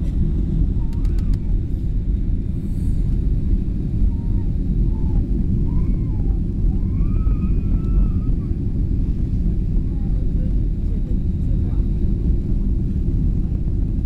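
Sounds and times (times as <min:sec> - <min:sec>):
airliner cabin engine rumble: 0:00.0 - 0:14.0
faint voices: 0:03.8 - 0:13.2.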